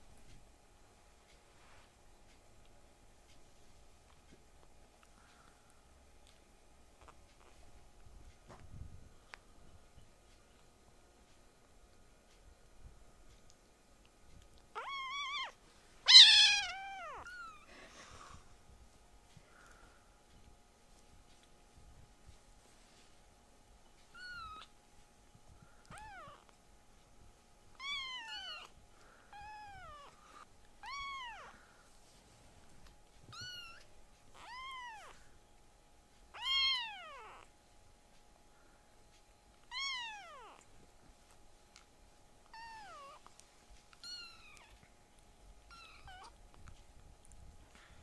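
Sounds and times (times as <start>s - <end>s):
kitten meowing: 14.7s - 17.7s, 24.1s - 24.7s, 25.9s - 26.5s, 27.8s - 28.7s, 30.8s - 31.5s, 33.3s - 35.2s, 36.4s - 37.5s, 39.7s - 40.6s, 42.5s - 43.2s, 44.0s - 44.8s, 45.7s - 46.4s.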